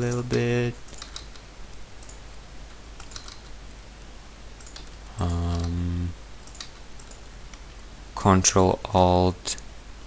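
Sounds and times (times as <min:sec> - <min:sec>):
keyboard key presses: 0:03.0 - 0:03.5
person humming: 0:05.2 - 0:06.2.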